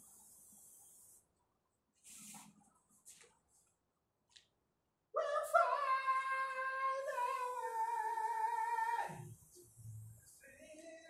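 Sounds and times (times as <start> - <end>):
spray can hisses: 0.0 - 1.2.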